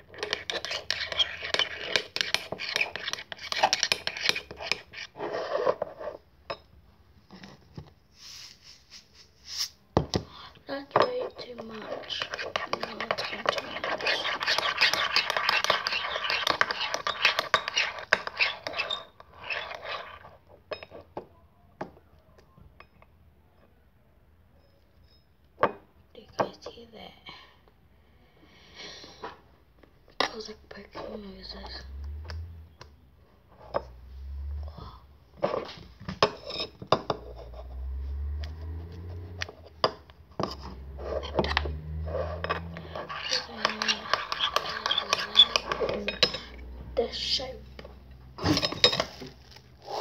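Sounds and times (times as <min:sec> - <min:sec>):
metal spoon clinking metal bowl: 0:42.4 - 0:46.6.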